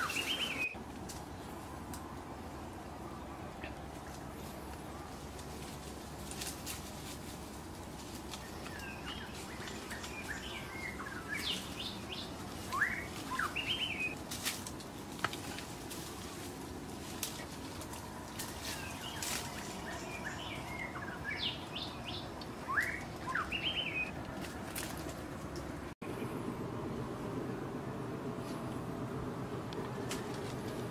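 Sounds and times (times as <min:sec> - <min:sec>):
bird chirping: 0:00.0 - 0:00.8, 0:08.4 - 0:14.2, 0:18.6 - 0:24.2
low background noise: 0:00.0 - 0:30.9.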